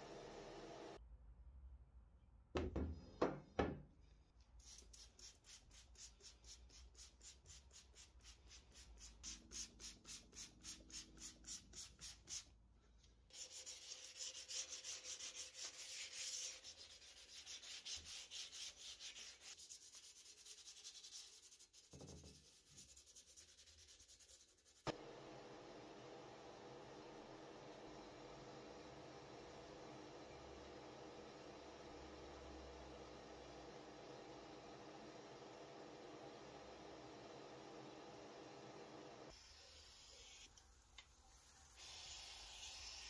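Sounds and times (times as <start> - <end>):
hand rubbing strokes: 13.3 - 24.8.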